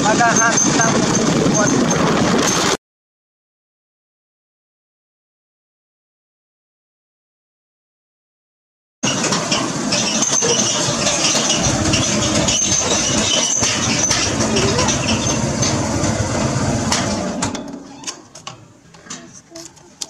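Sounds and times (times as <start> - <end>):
motorcycle engine running: 10.3 - 17.3.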